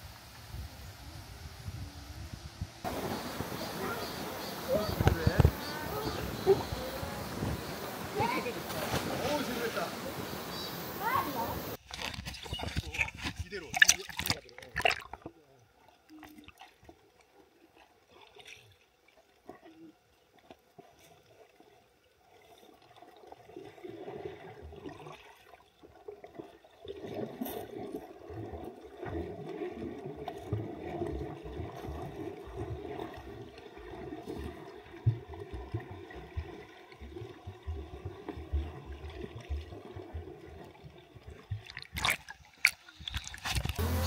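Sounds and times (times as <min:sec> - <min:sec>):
muffled underwater gurgling rush: 0:01.2 - 0:15.4.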